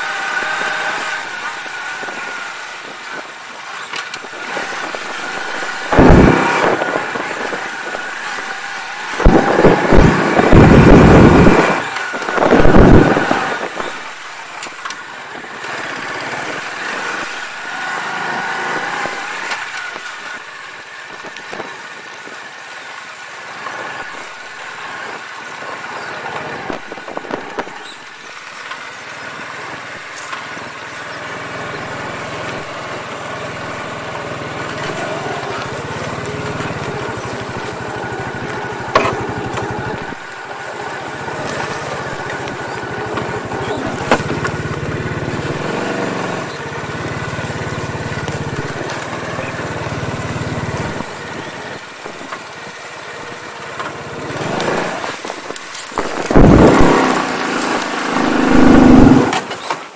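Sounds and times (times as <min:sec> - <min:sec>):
moped engine running: 0:00.0 - 0:59.9
wind buffeting microphone: 0:04.2 - 0:17.5, 0:54.2 - 0:59.4.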